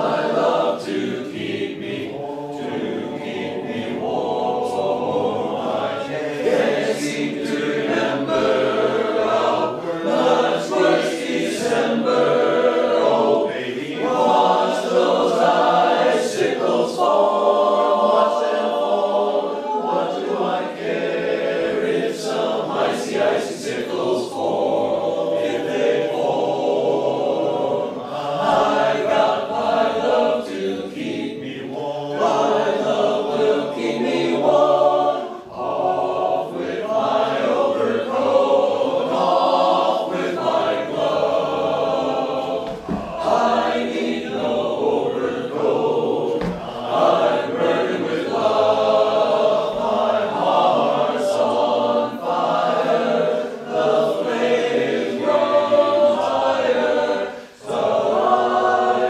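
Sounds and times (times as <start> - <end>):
choir singing: 0.0 - 59.0.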